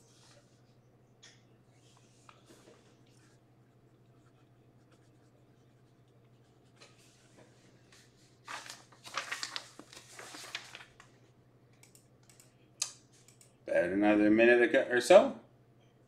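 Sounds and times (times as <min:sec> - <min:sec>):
low electrical hum: 0:00.0 - 0:16.0
rustling and crinkling: 0:01.8 - 0:11.2.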